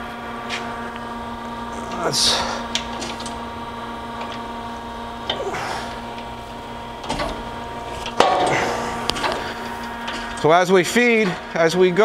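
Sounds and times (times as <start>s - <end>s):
grinder machine humming: 0.0s - 12.0s
sharp metallic clunk: 8.1s - 9.4s.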